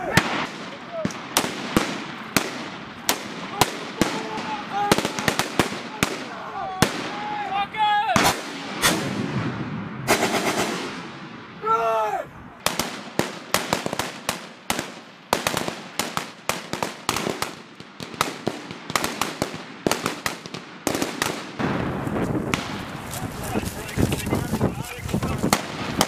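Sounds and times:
person shouting: 0:00.0 - 0:00.2, 0:03.5 - 0:08.2, 0:11.6 - 0:12.3
rifle shots: 0:00.0 - 0:07.2, 0:08.2 - 0:11.4, 0:12.6 - 0:23.2.

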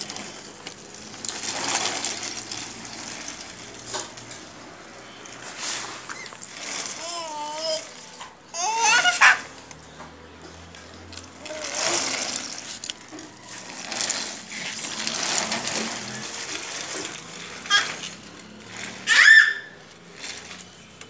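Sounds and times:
walker wheels rattling on concrete: 0:00.0 - 0:21.0
baby squealing: 0:06.2 - 0:09.6, 0:17.6 - 0:18.2, 0:18.9 - 0:19.8.

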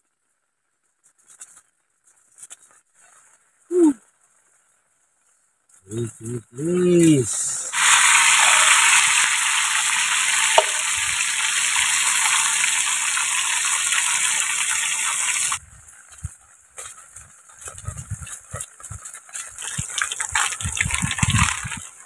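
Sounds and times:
shrimp sizzling in a pan: 0:07.7 - 0:15.6
spoon knocking and scraping pan: 0:10.4 - 0:11.0.

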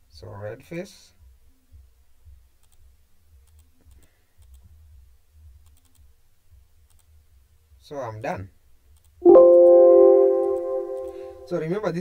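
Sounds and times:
faint computer mouse clicks: 0:02.6 - 0:04.7, 0:05.6 - 0:06.1, 0:06.8 - 0:07.2.

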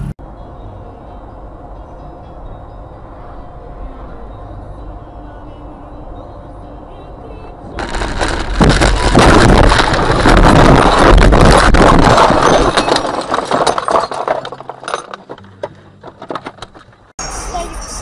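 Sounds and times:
glass breaking: 0:07.8 - 0:15.4
car crash: 0:07.8 - 0:17.1
metal crunching: 0:07.8 - 0:17.1.

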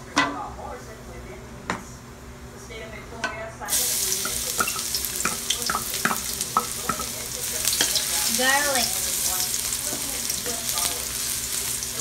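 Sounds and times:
garlic sizzling in hot oil: 0:03.7 - 0:12.0.

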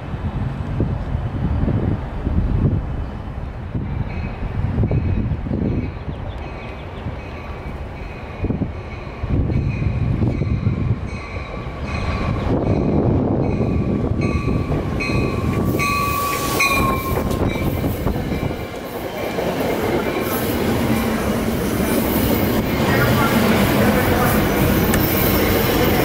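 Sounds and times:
train wheels rumbling on rails: 0:00.0 - 0:26.0
high ringing note: 0:14.3 - 0:17.8
high squeal sliding down: 0:15.5 - 0:17.8.

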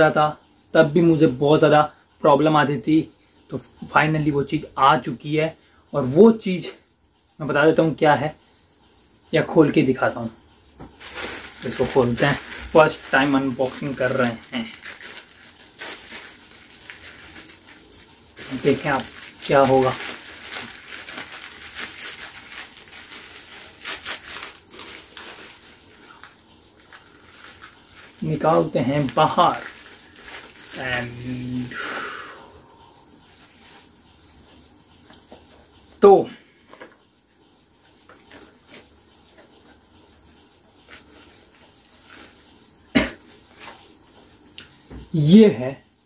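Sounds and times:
packaging rustling and scraping: 0:10.8 - 0:31.8, 0:36.6 - 0:37.2, 0:37.8 - 0:39.8, 0:40.7 - 0:42.6, 0:43.2 - 0:44.8
plastic mailer bag crinkling: 0:10.9 - 0:31.6.

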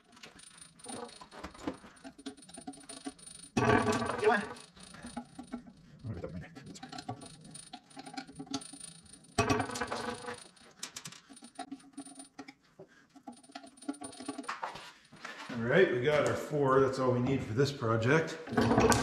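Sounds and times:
metal clatter: 0:00.0 - 0:05.8, 0:06.6 - 0:12.4, 0:13.2 - 0:14.7
metal clinks and scrapes: 0:00.0 - 0:12.5, 0:13.2 - 0:15.7.

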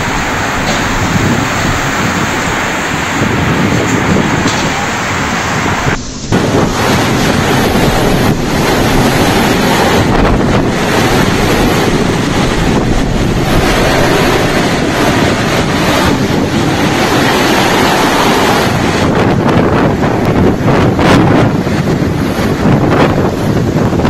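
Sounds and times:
strong wind buffeting microphone: 0:00.0 - 0:24.0.

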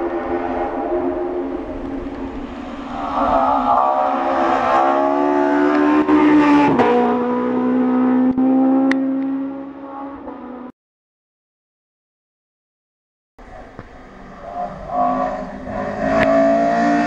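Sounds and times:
race car engine at full throttle: 0:00.0 - 0:10.7, 0:13.4 - 0:17.0.

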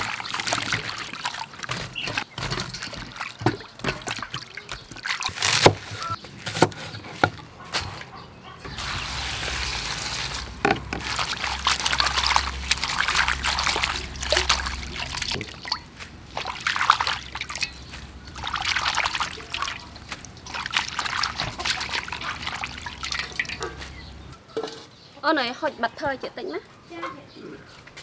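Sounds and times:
water sloshing in a steel bowl: 0:00.0 - 0:05.6, 0:08.7 - 0:24.8.

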